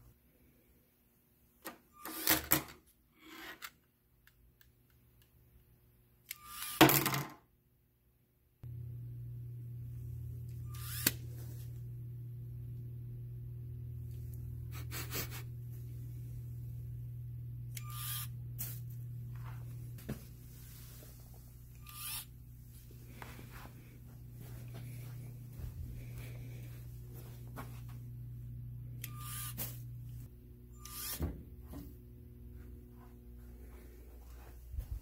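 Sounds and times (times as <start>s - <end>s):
small motor whirring: 6.3s - 6.8s, 10.6s - 11.4s, 17.7s - 18.7s, 21.7s - 22.3s, 29.0s - 29.8s, 30.7s - 31.2s
steady low hum: 8.6s - 35.0s.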